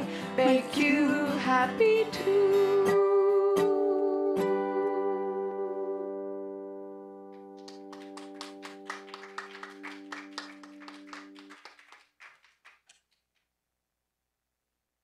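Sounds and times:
small group clapping: 0:07.4 - 0:13.5.

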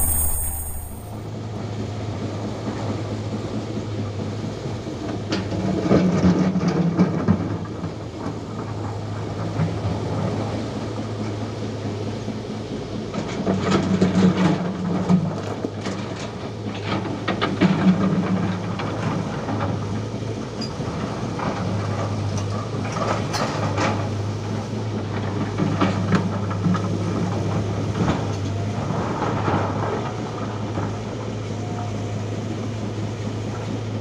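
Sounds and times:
excavator clanks and knocks: 0:05.0 - 0:34.0
excavator diesel engine droning: 0:07.4 - 0:34.0.

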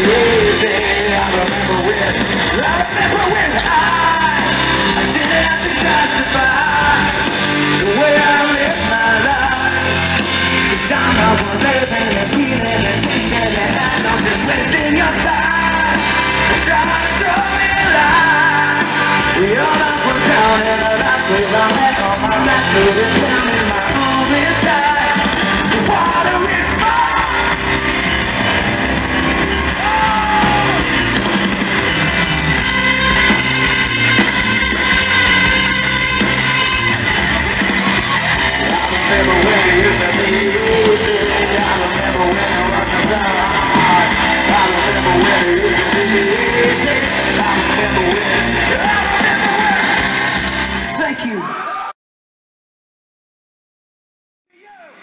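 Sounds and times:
man singing: 0:00.0 - 0:27.7, 0:38.5 - 0:50.2
bass guitar: 0:00.0 - 0:51.2
distorted electric guitar: 0:00.0 - 0:51.3
drums: 0:00.0 - 0:51.9.

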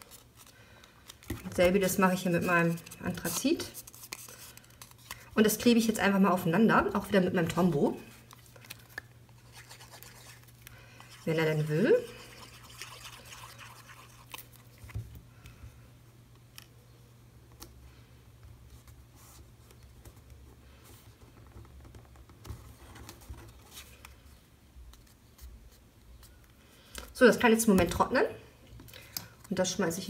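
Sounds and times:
soft paper rustles: 0:00.0 - 0:06.0, 0:07.5 - 0:15.2, 0:18.6 - 0:27.1.

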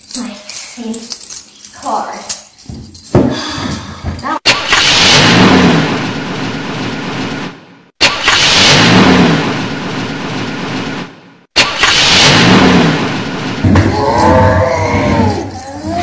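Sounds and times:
car engine starting and revving: 0:11.8 - 0:13.7.

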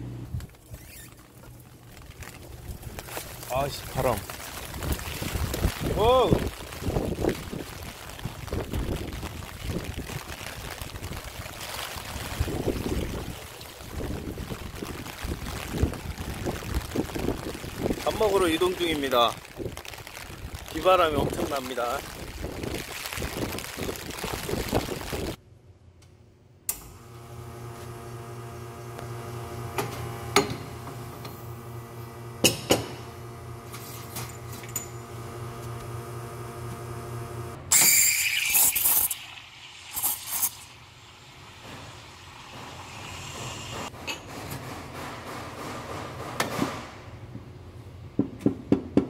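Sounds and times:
wind and rain buffeting microphone: 0:01.3 - 0:25.4
steady multi-pitched hum: 0:26.5 - 0:37.7
steam wand hissing: 0:37.7 - 0:43.9.

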